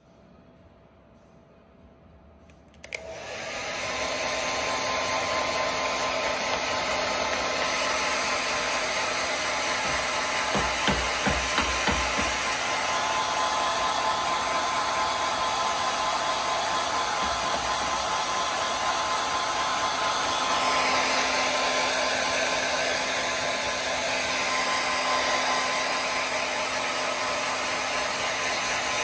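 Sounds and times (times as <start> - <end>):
hair dryer switch click: 2.7 - 3.8, 4.6 - 8.8
hair dryer blowing: 2.8 - 29.0.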